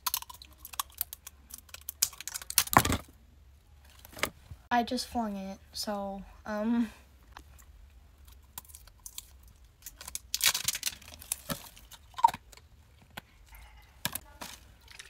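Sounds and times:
packaging crinkling and tearing: 0.0 - 3.0, 8.6 - 12.5.

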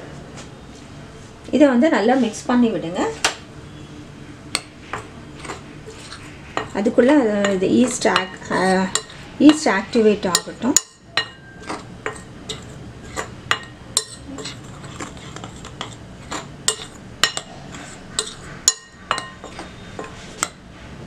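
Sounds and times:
spoon stirring flour: 4.6 - 20.6
spoon clinking against glass bowl: 10.3 - 17.5, 18.2 - 20.6.

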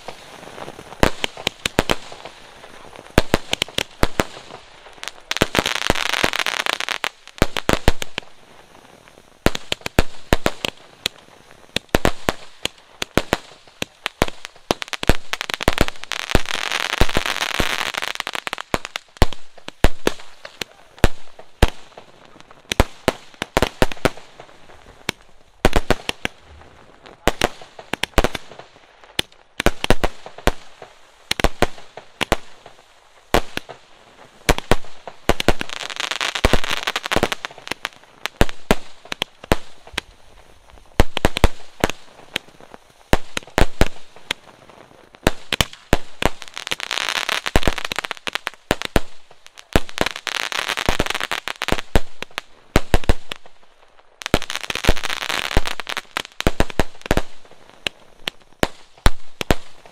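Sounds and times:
fireworks bangs: 0.0 - 59.9
fireworks crackling: 0.0 - 59.9.

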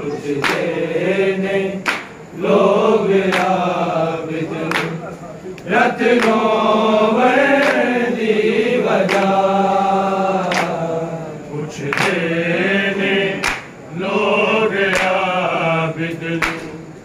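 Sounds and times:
men singing a lament: 0.0 - 17.0
sharp slaps: 0.4 - 0.7, 1.8 - 2.2, 3.3 - 3.6, 4.7 - 5.0, 6.2 - 6.4, 9.0 - 9.4, 10.4 - 10.8, 11.9 - 12.2, 13.4 - 13.7, 14.9 - 15.2, 16.4 - 16.8.

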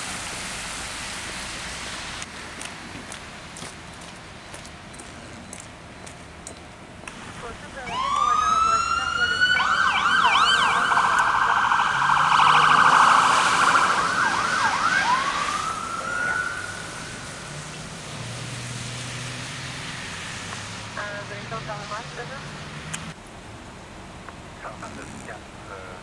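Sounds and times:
low traffic hum: 0.0 - 26.0
electronic siren wailing and yelping: 7.8 - 17.5.

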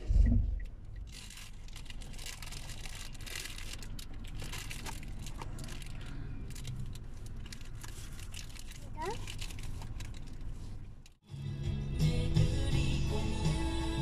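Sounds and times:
paper box rustling and crackling: 1.1 - 10.8.

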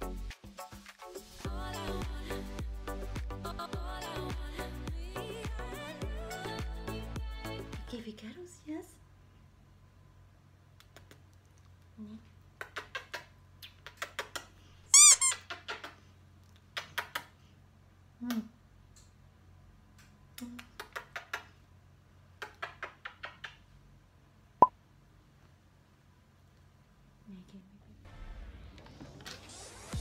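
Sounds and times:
smacking kisses: 10.8 - 11.9, 12.6 - 14.6, 15.3 - 17.4, 20.0 - 21.6.

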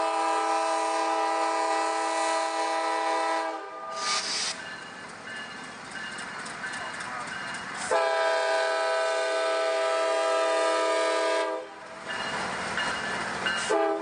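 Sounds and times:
locomotive air horn: 0.0 - 4.5, 7.9 - 11.8, 13.6 - 14.0
train rumbling past: 0.0 - 14.0
wheels clicking on rails: 4.6 - 8.0.

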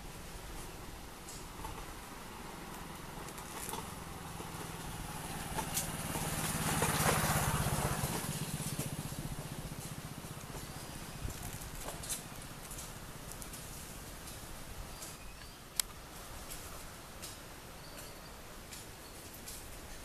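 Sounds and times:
vehicle engine passing by: 2.0 - 13.8.

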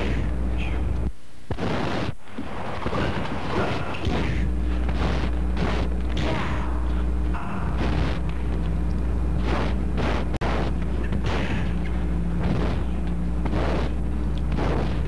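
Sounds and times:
steady low hum: 0.0 - 15.0
punch and kick hits: 1.5 - 2.2, 2.8 - 6.7, 9.4 - 11.7.

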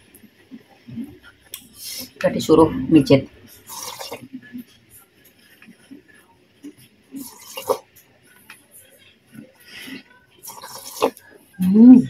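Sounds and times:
mouth eating noises: 3.6 - 4.7, 6.6 - 7.9, 9.4 - 12.0.

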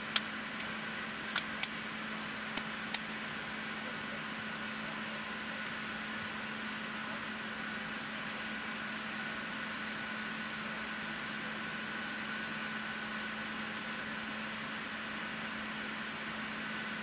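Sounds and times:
sharp clicks: 1.3 - 1.8.

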